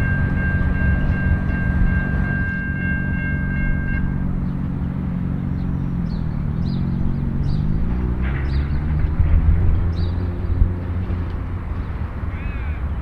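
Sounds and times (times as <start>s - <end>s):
locomotive horn: 0.0s - 4.7s
locomotive engine running: 0.0s - 12.3s
birds chirping: 0.0s - 13.0s
road vehicle engine: 0.0s - 13.0s.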